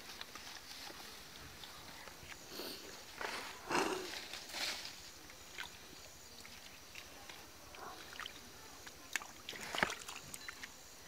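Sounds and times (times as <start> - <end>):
water splashing in stream: 8.0 - 10.7.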